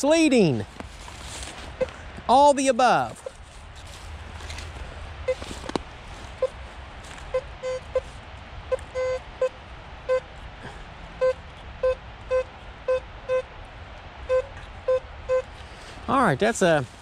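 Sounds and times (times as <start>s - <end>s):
metal detector beeping: 5.3s - 5.5s, 7.3s - 8.1s, 8.7s - 9.5s, 11.2s - 13.5s, 14.3s - 15.6s.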